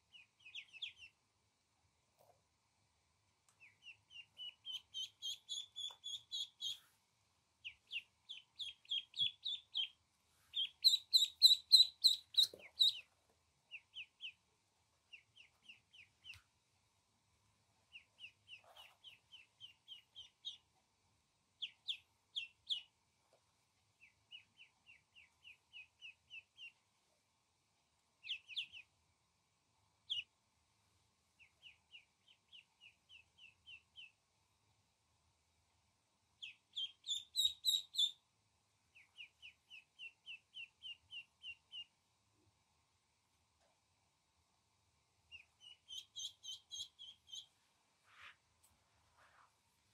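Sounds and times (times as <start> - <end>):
ducklings peeping: 0.1 - 1.2, 3.6 - 6.9, 7.6 - 13.1, 13.7 - 14.4, 15.1 - 16.4, 17.9 - 20.7, 21.6 - 23.0, 24.0 - 26.8, 28.2 - 29.0, 30.0 - 30.3, 31.4 - 34.2, 36.4 - 38.2, 38.9 - 42.0, 45.3 - 47.5.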